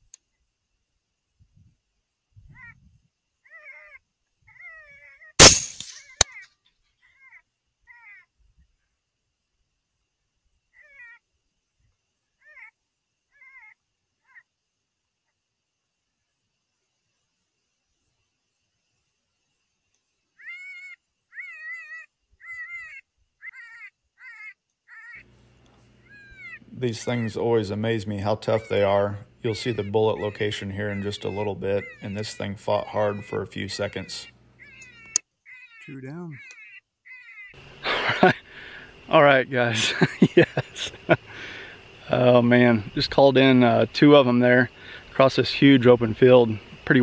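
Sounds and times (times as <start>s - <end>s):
high wavering yelping calls: 2.5s - 8.4s, 10.7s - 11.2s, 12.3s - 14.5s, 20.3s - 25.3s, 26.0s - 38.8s
rifle shot: 5.4s - 6.3s
sharp crack: 5.4s - 6.4s.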